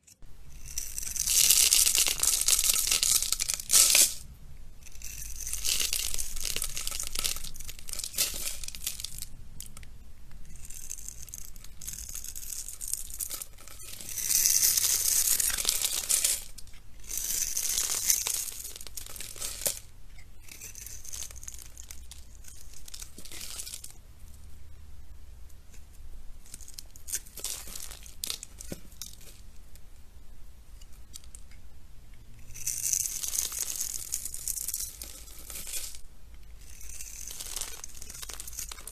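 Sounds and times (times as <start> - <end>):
soap cubes crumbling: 0.6 - 4.3, 4.9 - 9.8, 10.5 - 23.9, 26.5 - 29.4, 32.5 - 36.0, 36.6 - 38.9
knife blade scraping soap: 4.8 - 9.0, 20.1 - 23.8.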